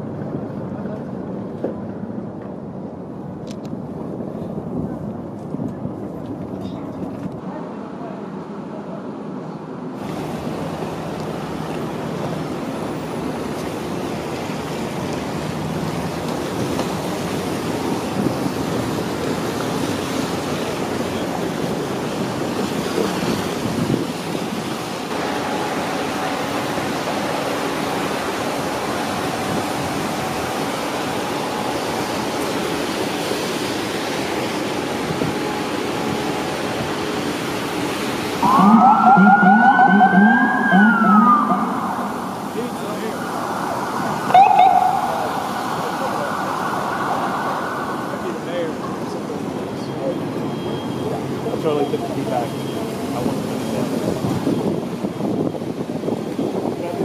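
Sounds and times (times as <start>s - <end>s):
traffic roar: 0.0s - 57.0s
emergency vehicle siren wailing: 38.3s - 56.4s.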